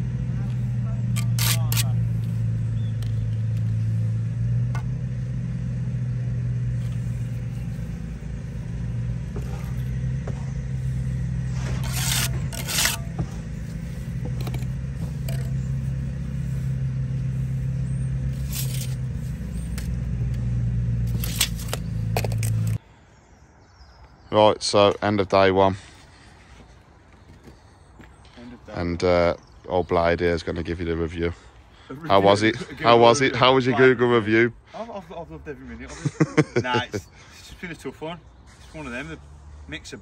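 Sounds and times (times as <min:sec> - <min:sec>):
engine droning: 0:00.0 - 0:23.6, 0:24.3 - 0:40.0
trowel scraping brick: 0:00.7 - 0:04.0, 0:06.8 - 0:22.8.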